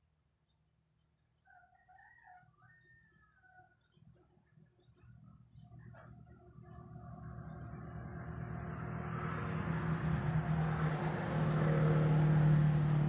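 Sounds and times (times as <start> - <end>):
vehicle engine rumble: 5.6 - 13.0.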